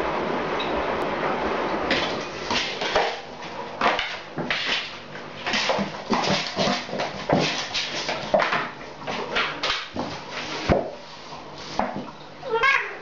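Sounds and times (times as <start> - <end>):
cats crying: 12.4 - 13.0.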